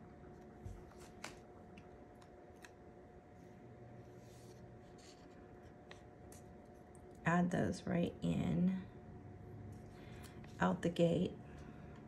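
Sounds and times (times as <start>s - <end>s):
faint hum: 0.0s - 12.0s
handling paper sticker sheets: 0.6s - 2.9s.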